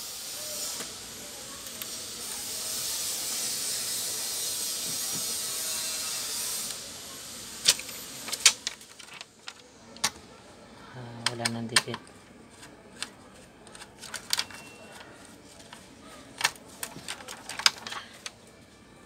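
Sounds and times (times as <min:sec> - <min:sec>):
adhesive sheet peeling hiss: 0:00.0 - 0:09.2
plastic sheet crinkling: 0:07.6 - 0:09.7, 0:12.5 - 0:18.4.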